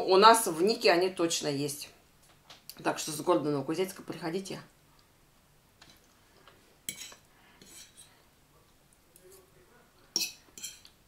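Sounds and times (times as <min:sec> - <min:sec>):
fork clinking on plate: 0:06.9 - 0:08.1, 0:10.2 - 0:10.9.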